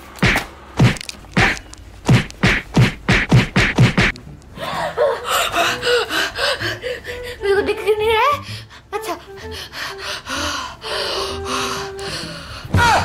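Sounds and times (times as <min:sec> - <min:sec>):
sharp smacks on body: 0:00.2 - 0:04.2.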